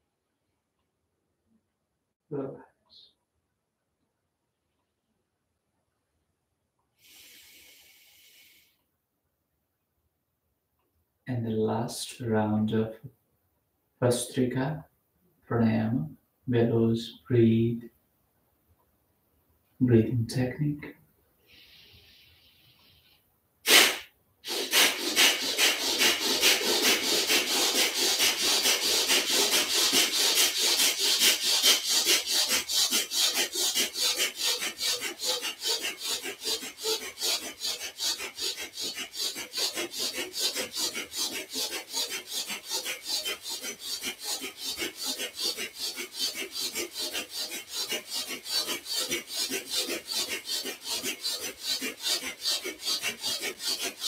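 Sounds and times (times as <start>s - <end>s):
man breathing forcefully through nose: 7.0s - 8.8s, 21.5s - 22.8s, 23.7s - 43.2s.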